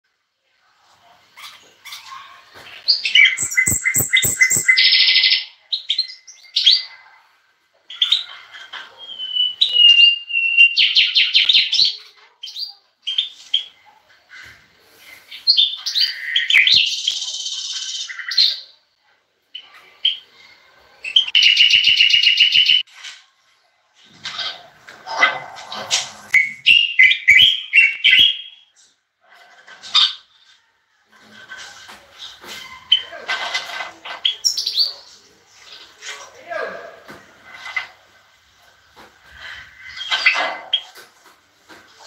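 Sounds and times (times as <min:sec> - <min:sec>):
songbirds twittering: 0:01.4 - 0:07.0
sharp clicks: 0:03.4 - 0:04.8.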